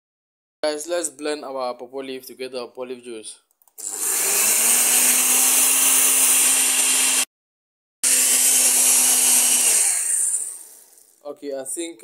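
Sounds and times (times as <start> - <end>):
blender whirring: 3.8 - 7.3, 8.0 - 11.2.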